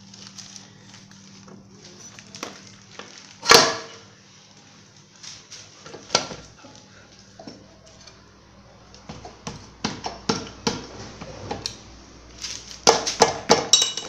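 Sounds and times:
metal engine parts clicking and knocking: 12.8s - 14.0s.

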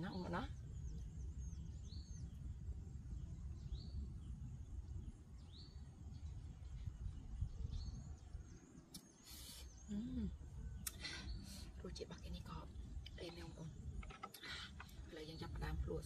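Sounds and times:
low rumble: 0.0s - 8.9s.

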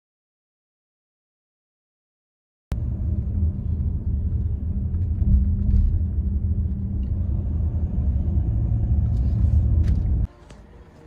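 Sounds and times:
car rumble from inside cabin: 2.7s - 10.3s.

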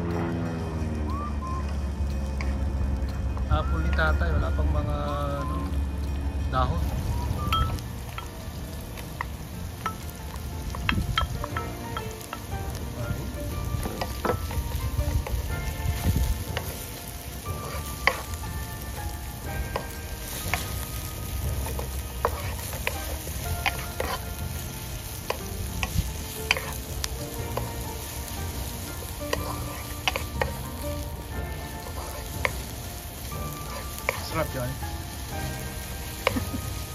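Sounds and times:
onion frying in oil: 0.0s - 36.9s
wooden spatula tapping a pan: 9.2s - 12.5s, 13.8s - 18.3s, 19.6s - 30.8s, 31.8s - 32.7s, 33.7s - 34.4s.

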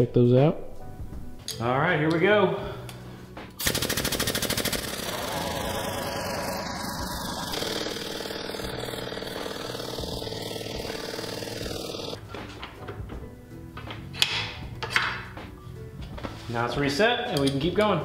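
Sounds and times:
hydraulic pump pulsing: 3.6s - 12.2s.

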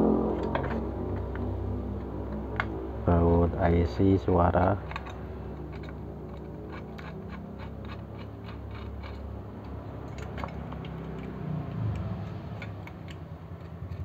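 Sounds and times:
low steady hum: 0.0s - 14.0s
fingers clicking on metal parts: 4.8s - 14.0s.

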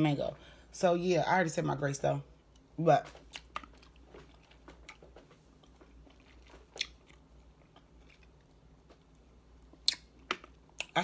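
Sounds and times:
person chewing fruit: 2.5s - 11.0s.

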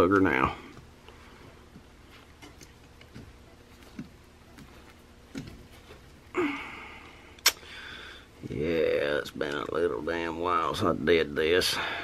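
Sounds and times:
clicks and taps of steel parts: 2.4s - 4.7s
person grunting with effort: 6.3s - 7.0s.

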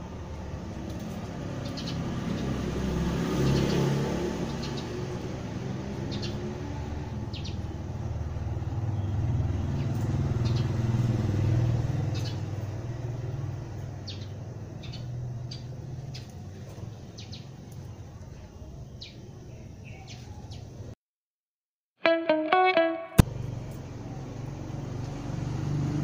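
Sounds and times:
vehicle engine rumble passing: 0.0s - 18.3s, 23.2s - 26.0s
small birds chirping: 1.0s - 2.7s, 3.4s - 5.1s, 5.9s - 7.9s, 8.7s - 20.9s.

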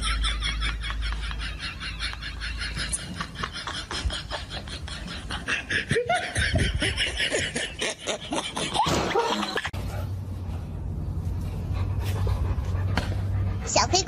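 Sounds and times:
human laughter: 0.0s - 9.8s.

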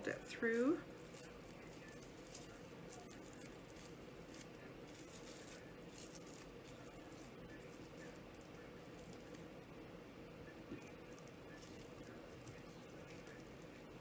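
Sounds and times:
raffia rustling: 0.0s - 9.5s
low room hum: 0.0s - 14.0s.

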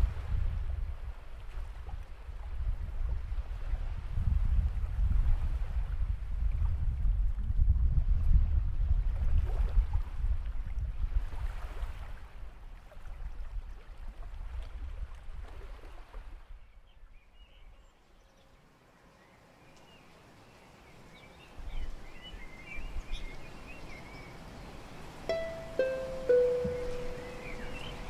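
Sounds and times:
wind buffeting microphone: 0.0s - 17.2s, 21.4s - 28.0s
sea waves washing: 24.2s - 28.0s
faint chirps: 25.4s - 28.0s.

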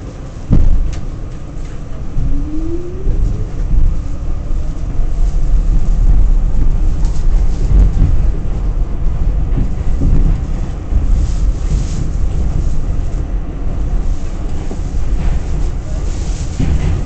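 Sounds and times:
subway car rumbling on track: 0.0s - 17.0s
rising whine: 2.0s - 5.1s.

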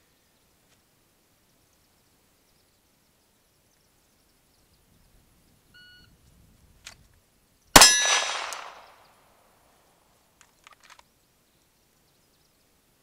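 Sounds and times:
steel target clang: 7.8s - 8.9s
pistol shot: 7.8s - 9.0s.

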